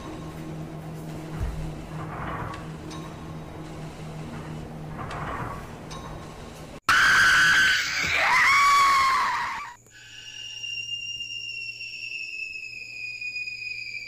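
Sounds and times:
low hum: 0:00.0 - 0:06.8
high eerie whine: 0:00.0 - 0:14.0.

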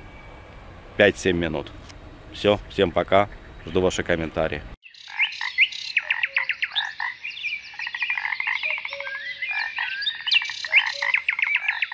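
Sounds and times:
downward-sweeping bird chirps: 0:04.8 - 0:11.9
frog calls rattling trills: 0:04.8 - 0:11.9.

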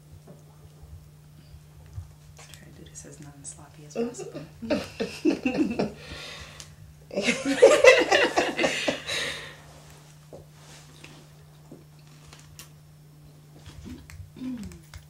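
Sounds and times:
low electrical hum: 0:00.0 - 0:15.0
women laughing: 0:04.0 - 0:06.0, 0:07.1 - 0:09.5.

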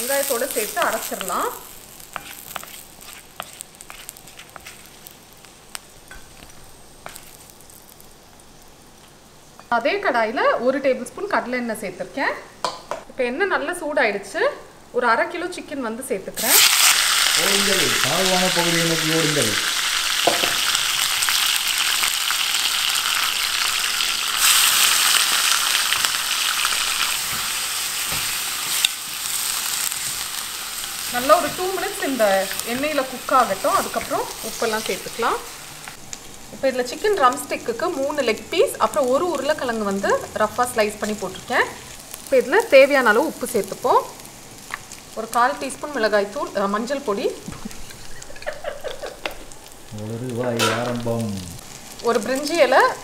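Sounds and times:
spices sizzling in a pan: 0:00.0 - 0:53.0
wooden spoon stirring: 0:02.1 - 0:05.1.

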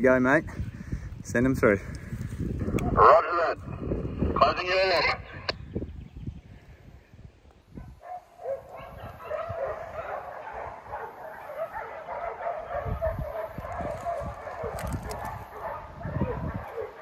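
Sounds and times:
wind rumble on microphone: 0:00.0 - 0:17.0
dogs barking and yipping: 0:07.8 - 0:17.0.

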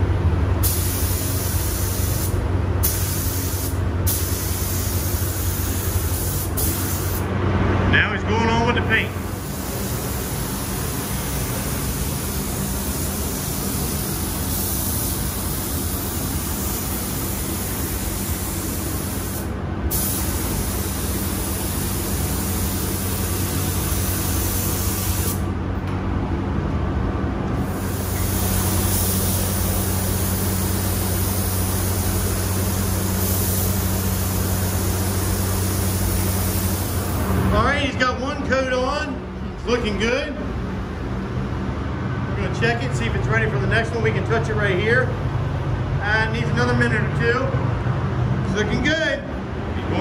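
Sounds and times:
spray gun hissing: 0:00.6 - 0:07.2, 0:09.1 - 0:25.5, 0:27.6 - 0:37.4.

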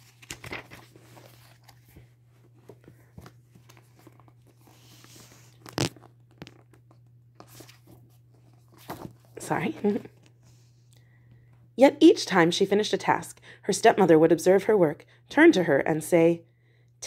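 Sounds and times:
paper pages rustling: 0:00.0 - 0:10.7
faint steady hum: 0:00.0 - 0:17.0.

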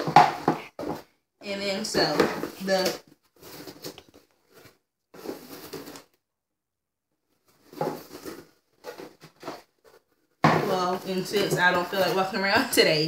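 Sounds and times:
cardboard box rustling and scraping: 0:03.3 - 0:06.0, 0:07.5 - 0:12.3.

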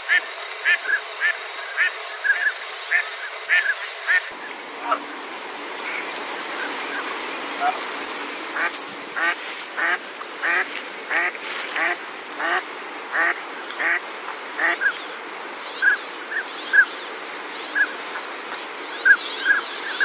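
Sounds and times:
duck quacking: 0:00.0 - 0:05.0, 0:08.6 - 0:14.0
background hiss: 0:00.0 - 0:20.0.

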